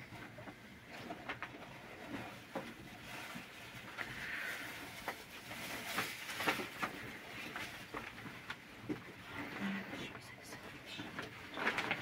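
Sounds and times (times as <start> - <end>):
fabric bag rustling: 1.0 - 9.8, 11.2 - 12.0.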